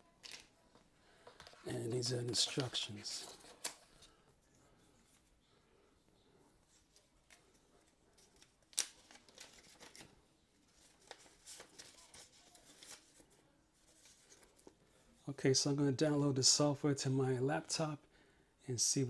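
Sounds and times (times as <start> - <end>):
paper rustling: 0.1 - 4.2, 6.7 - 14.8.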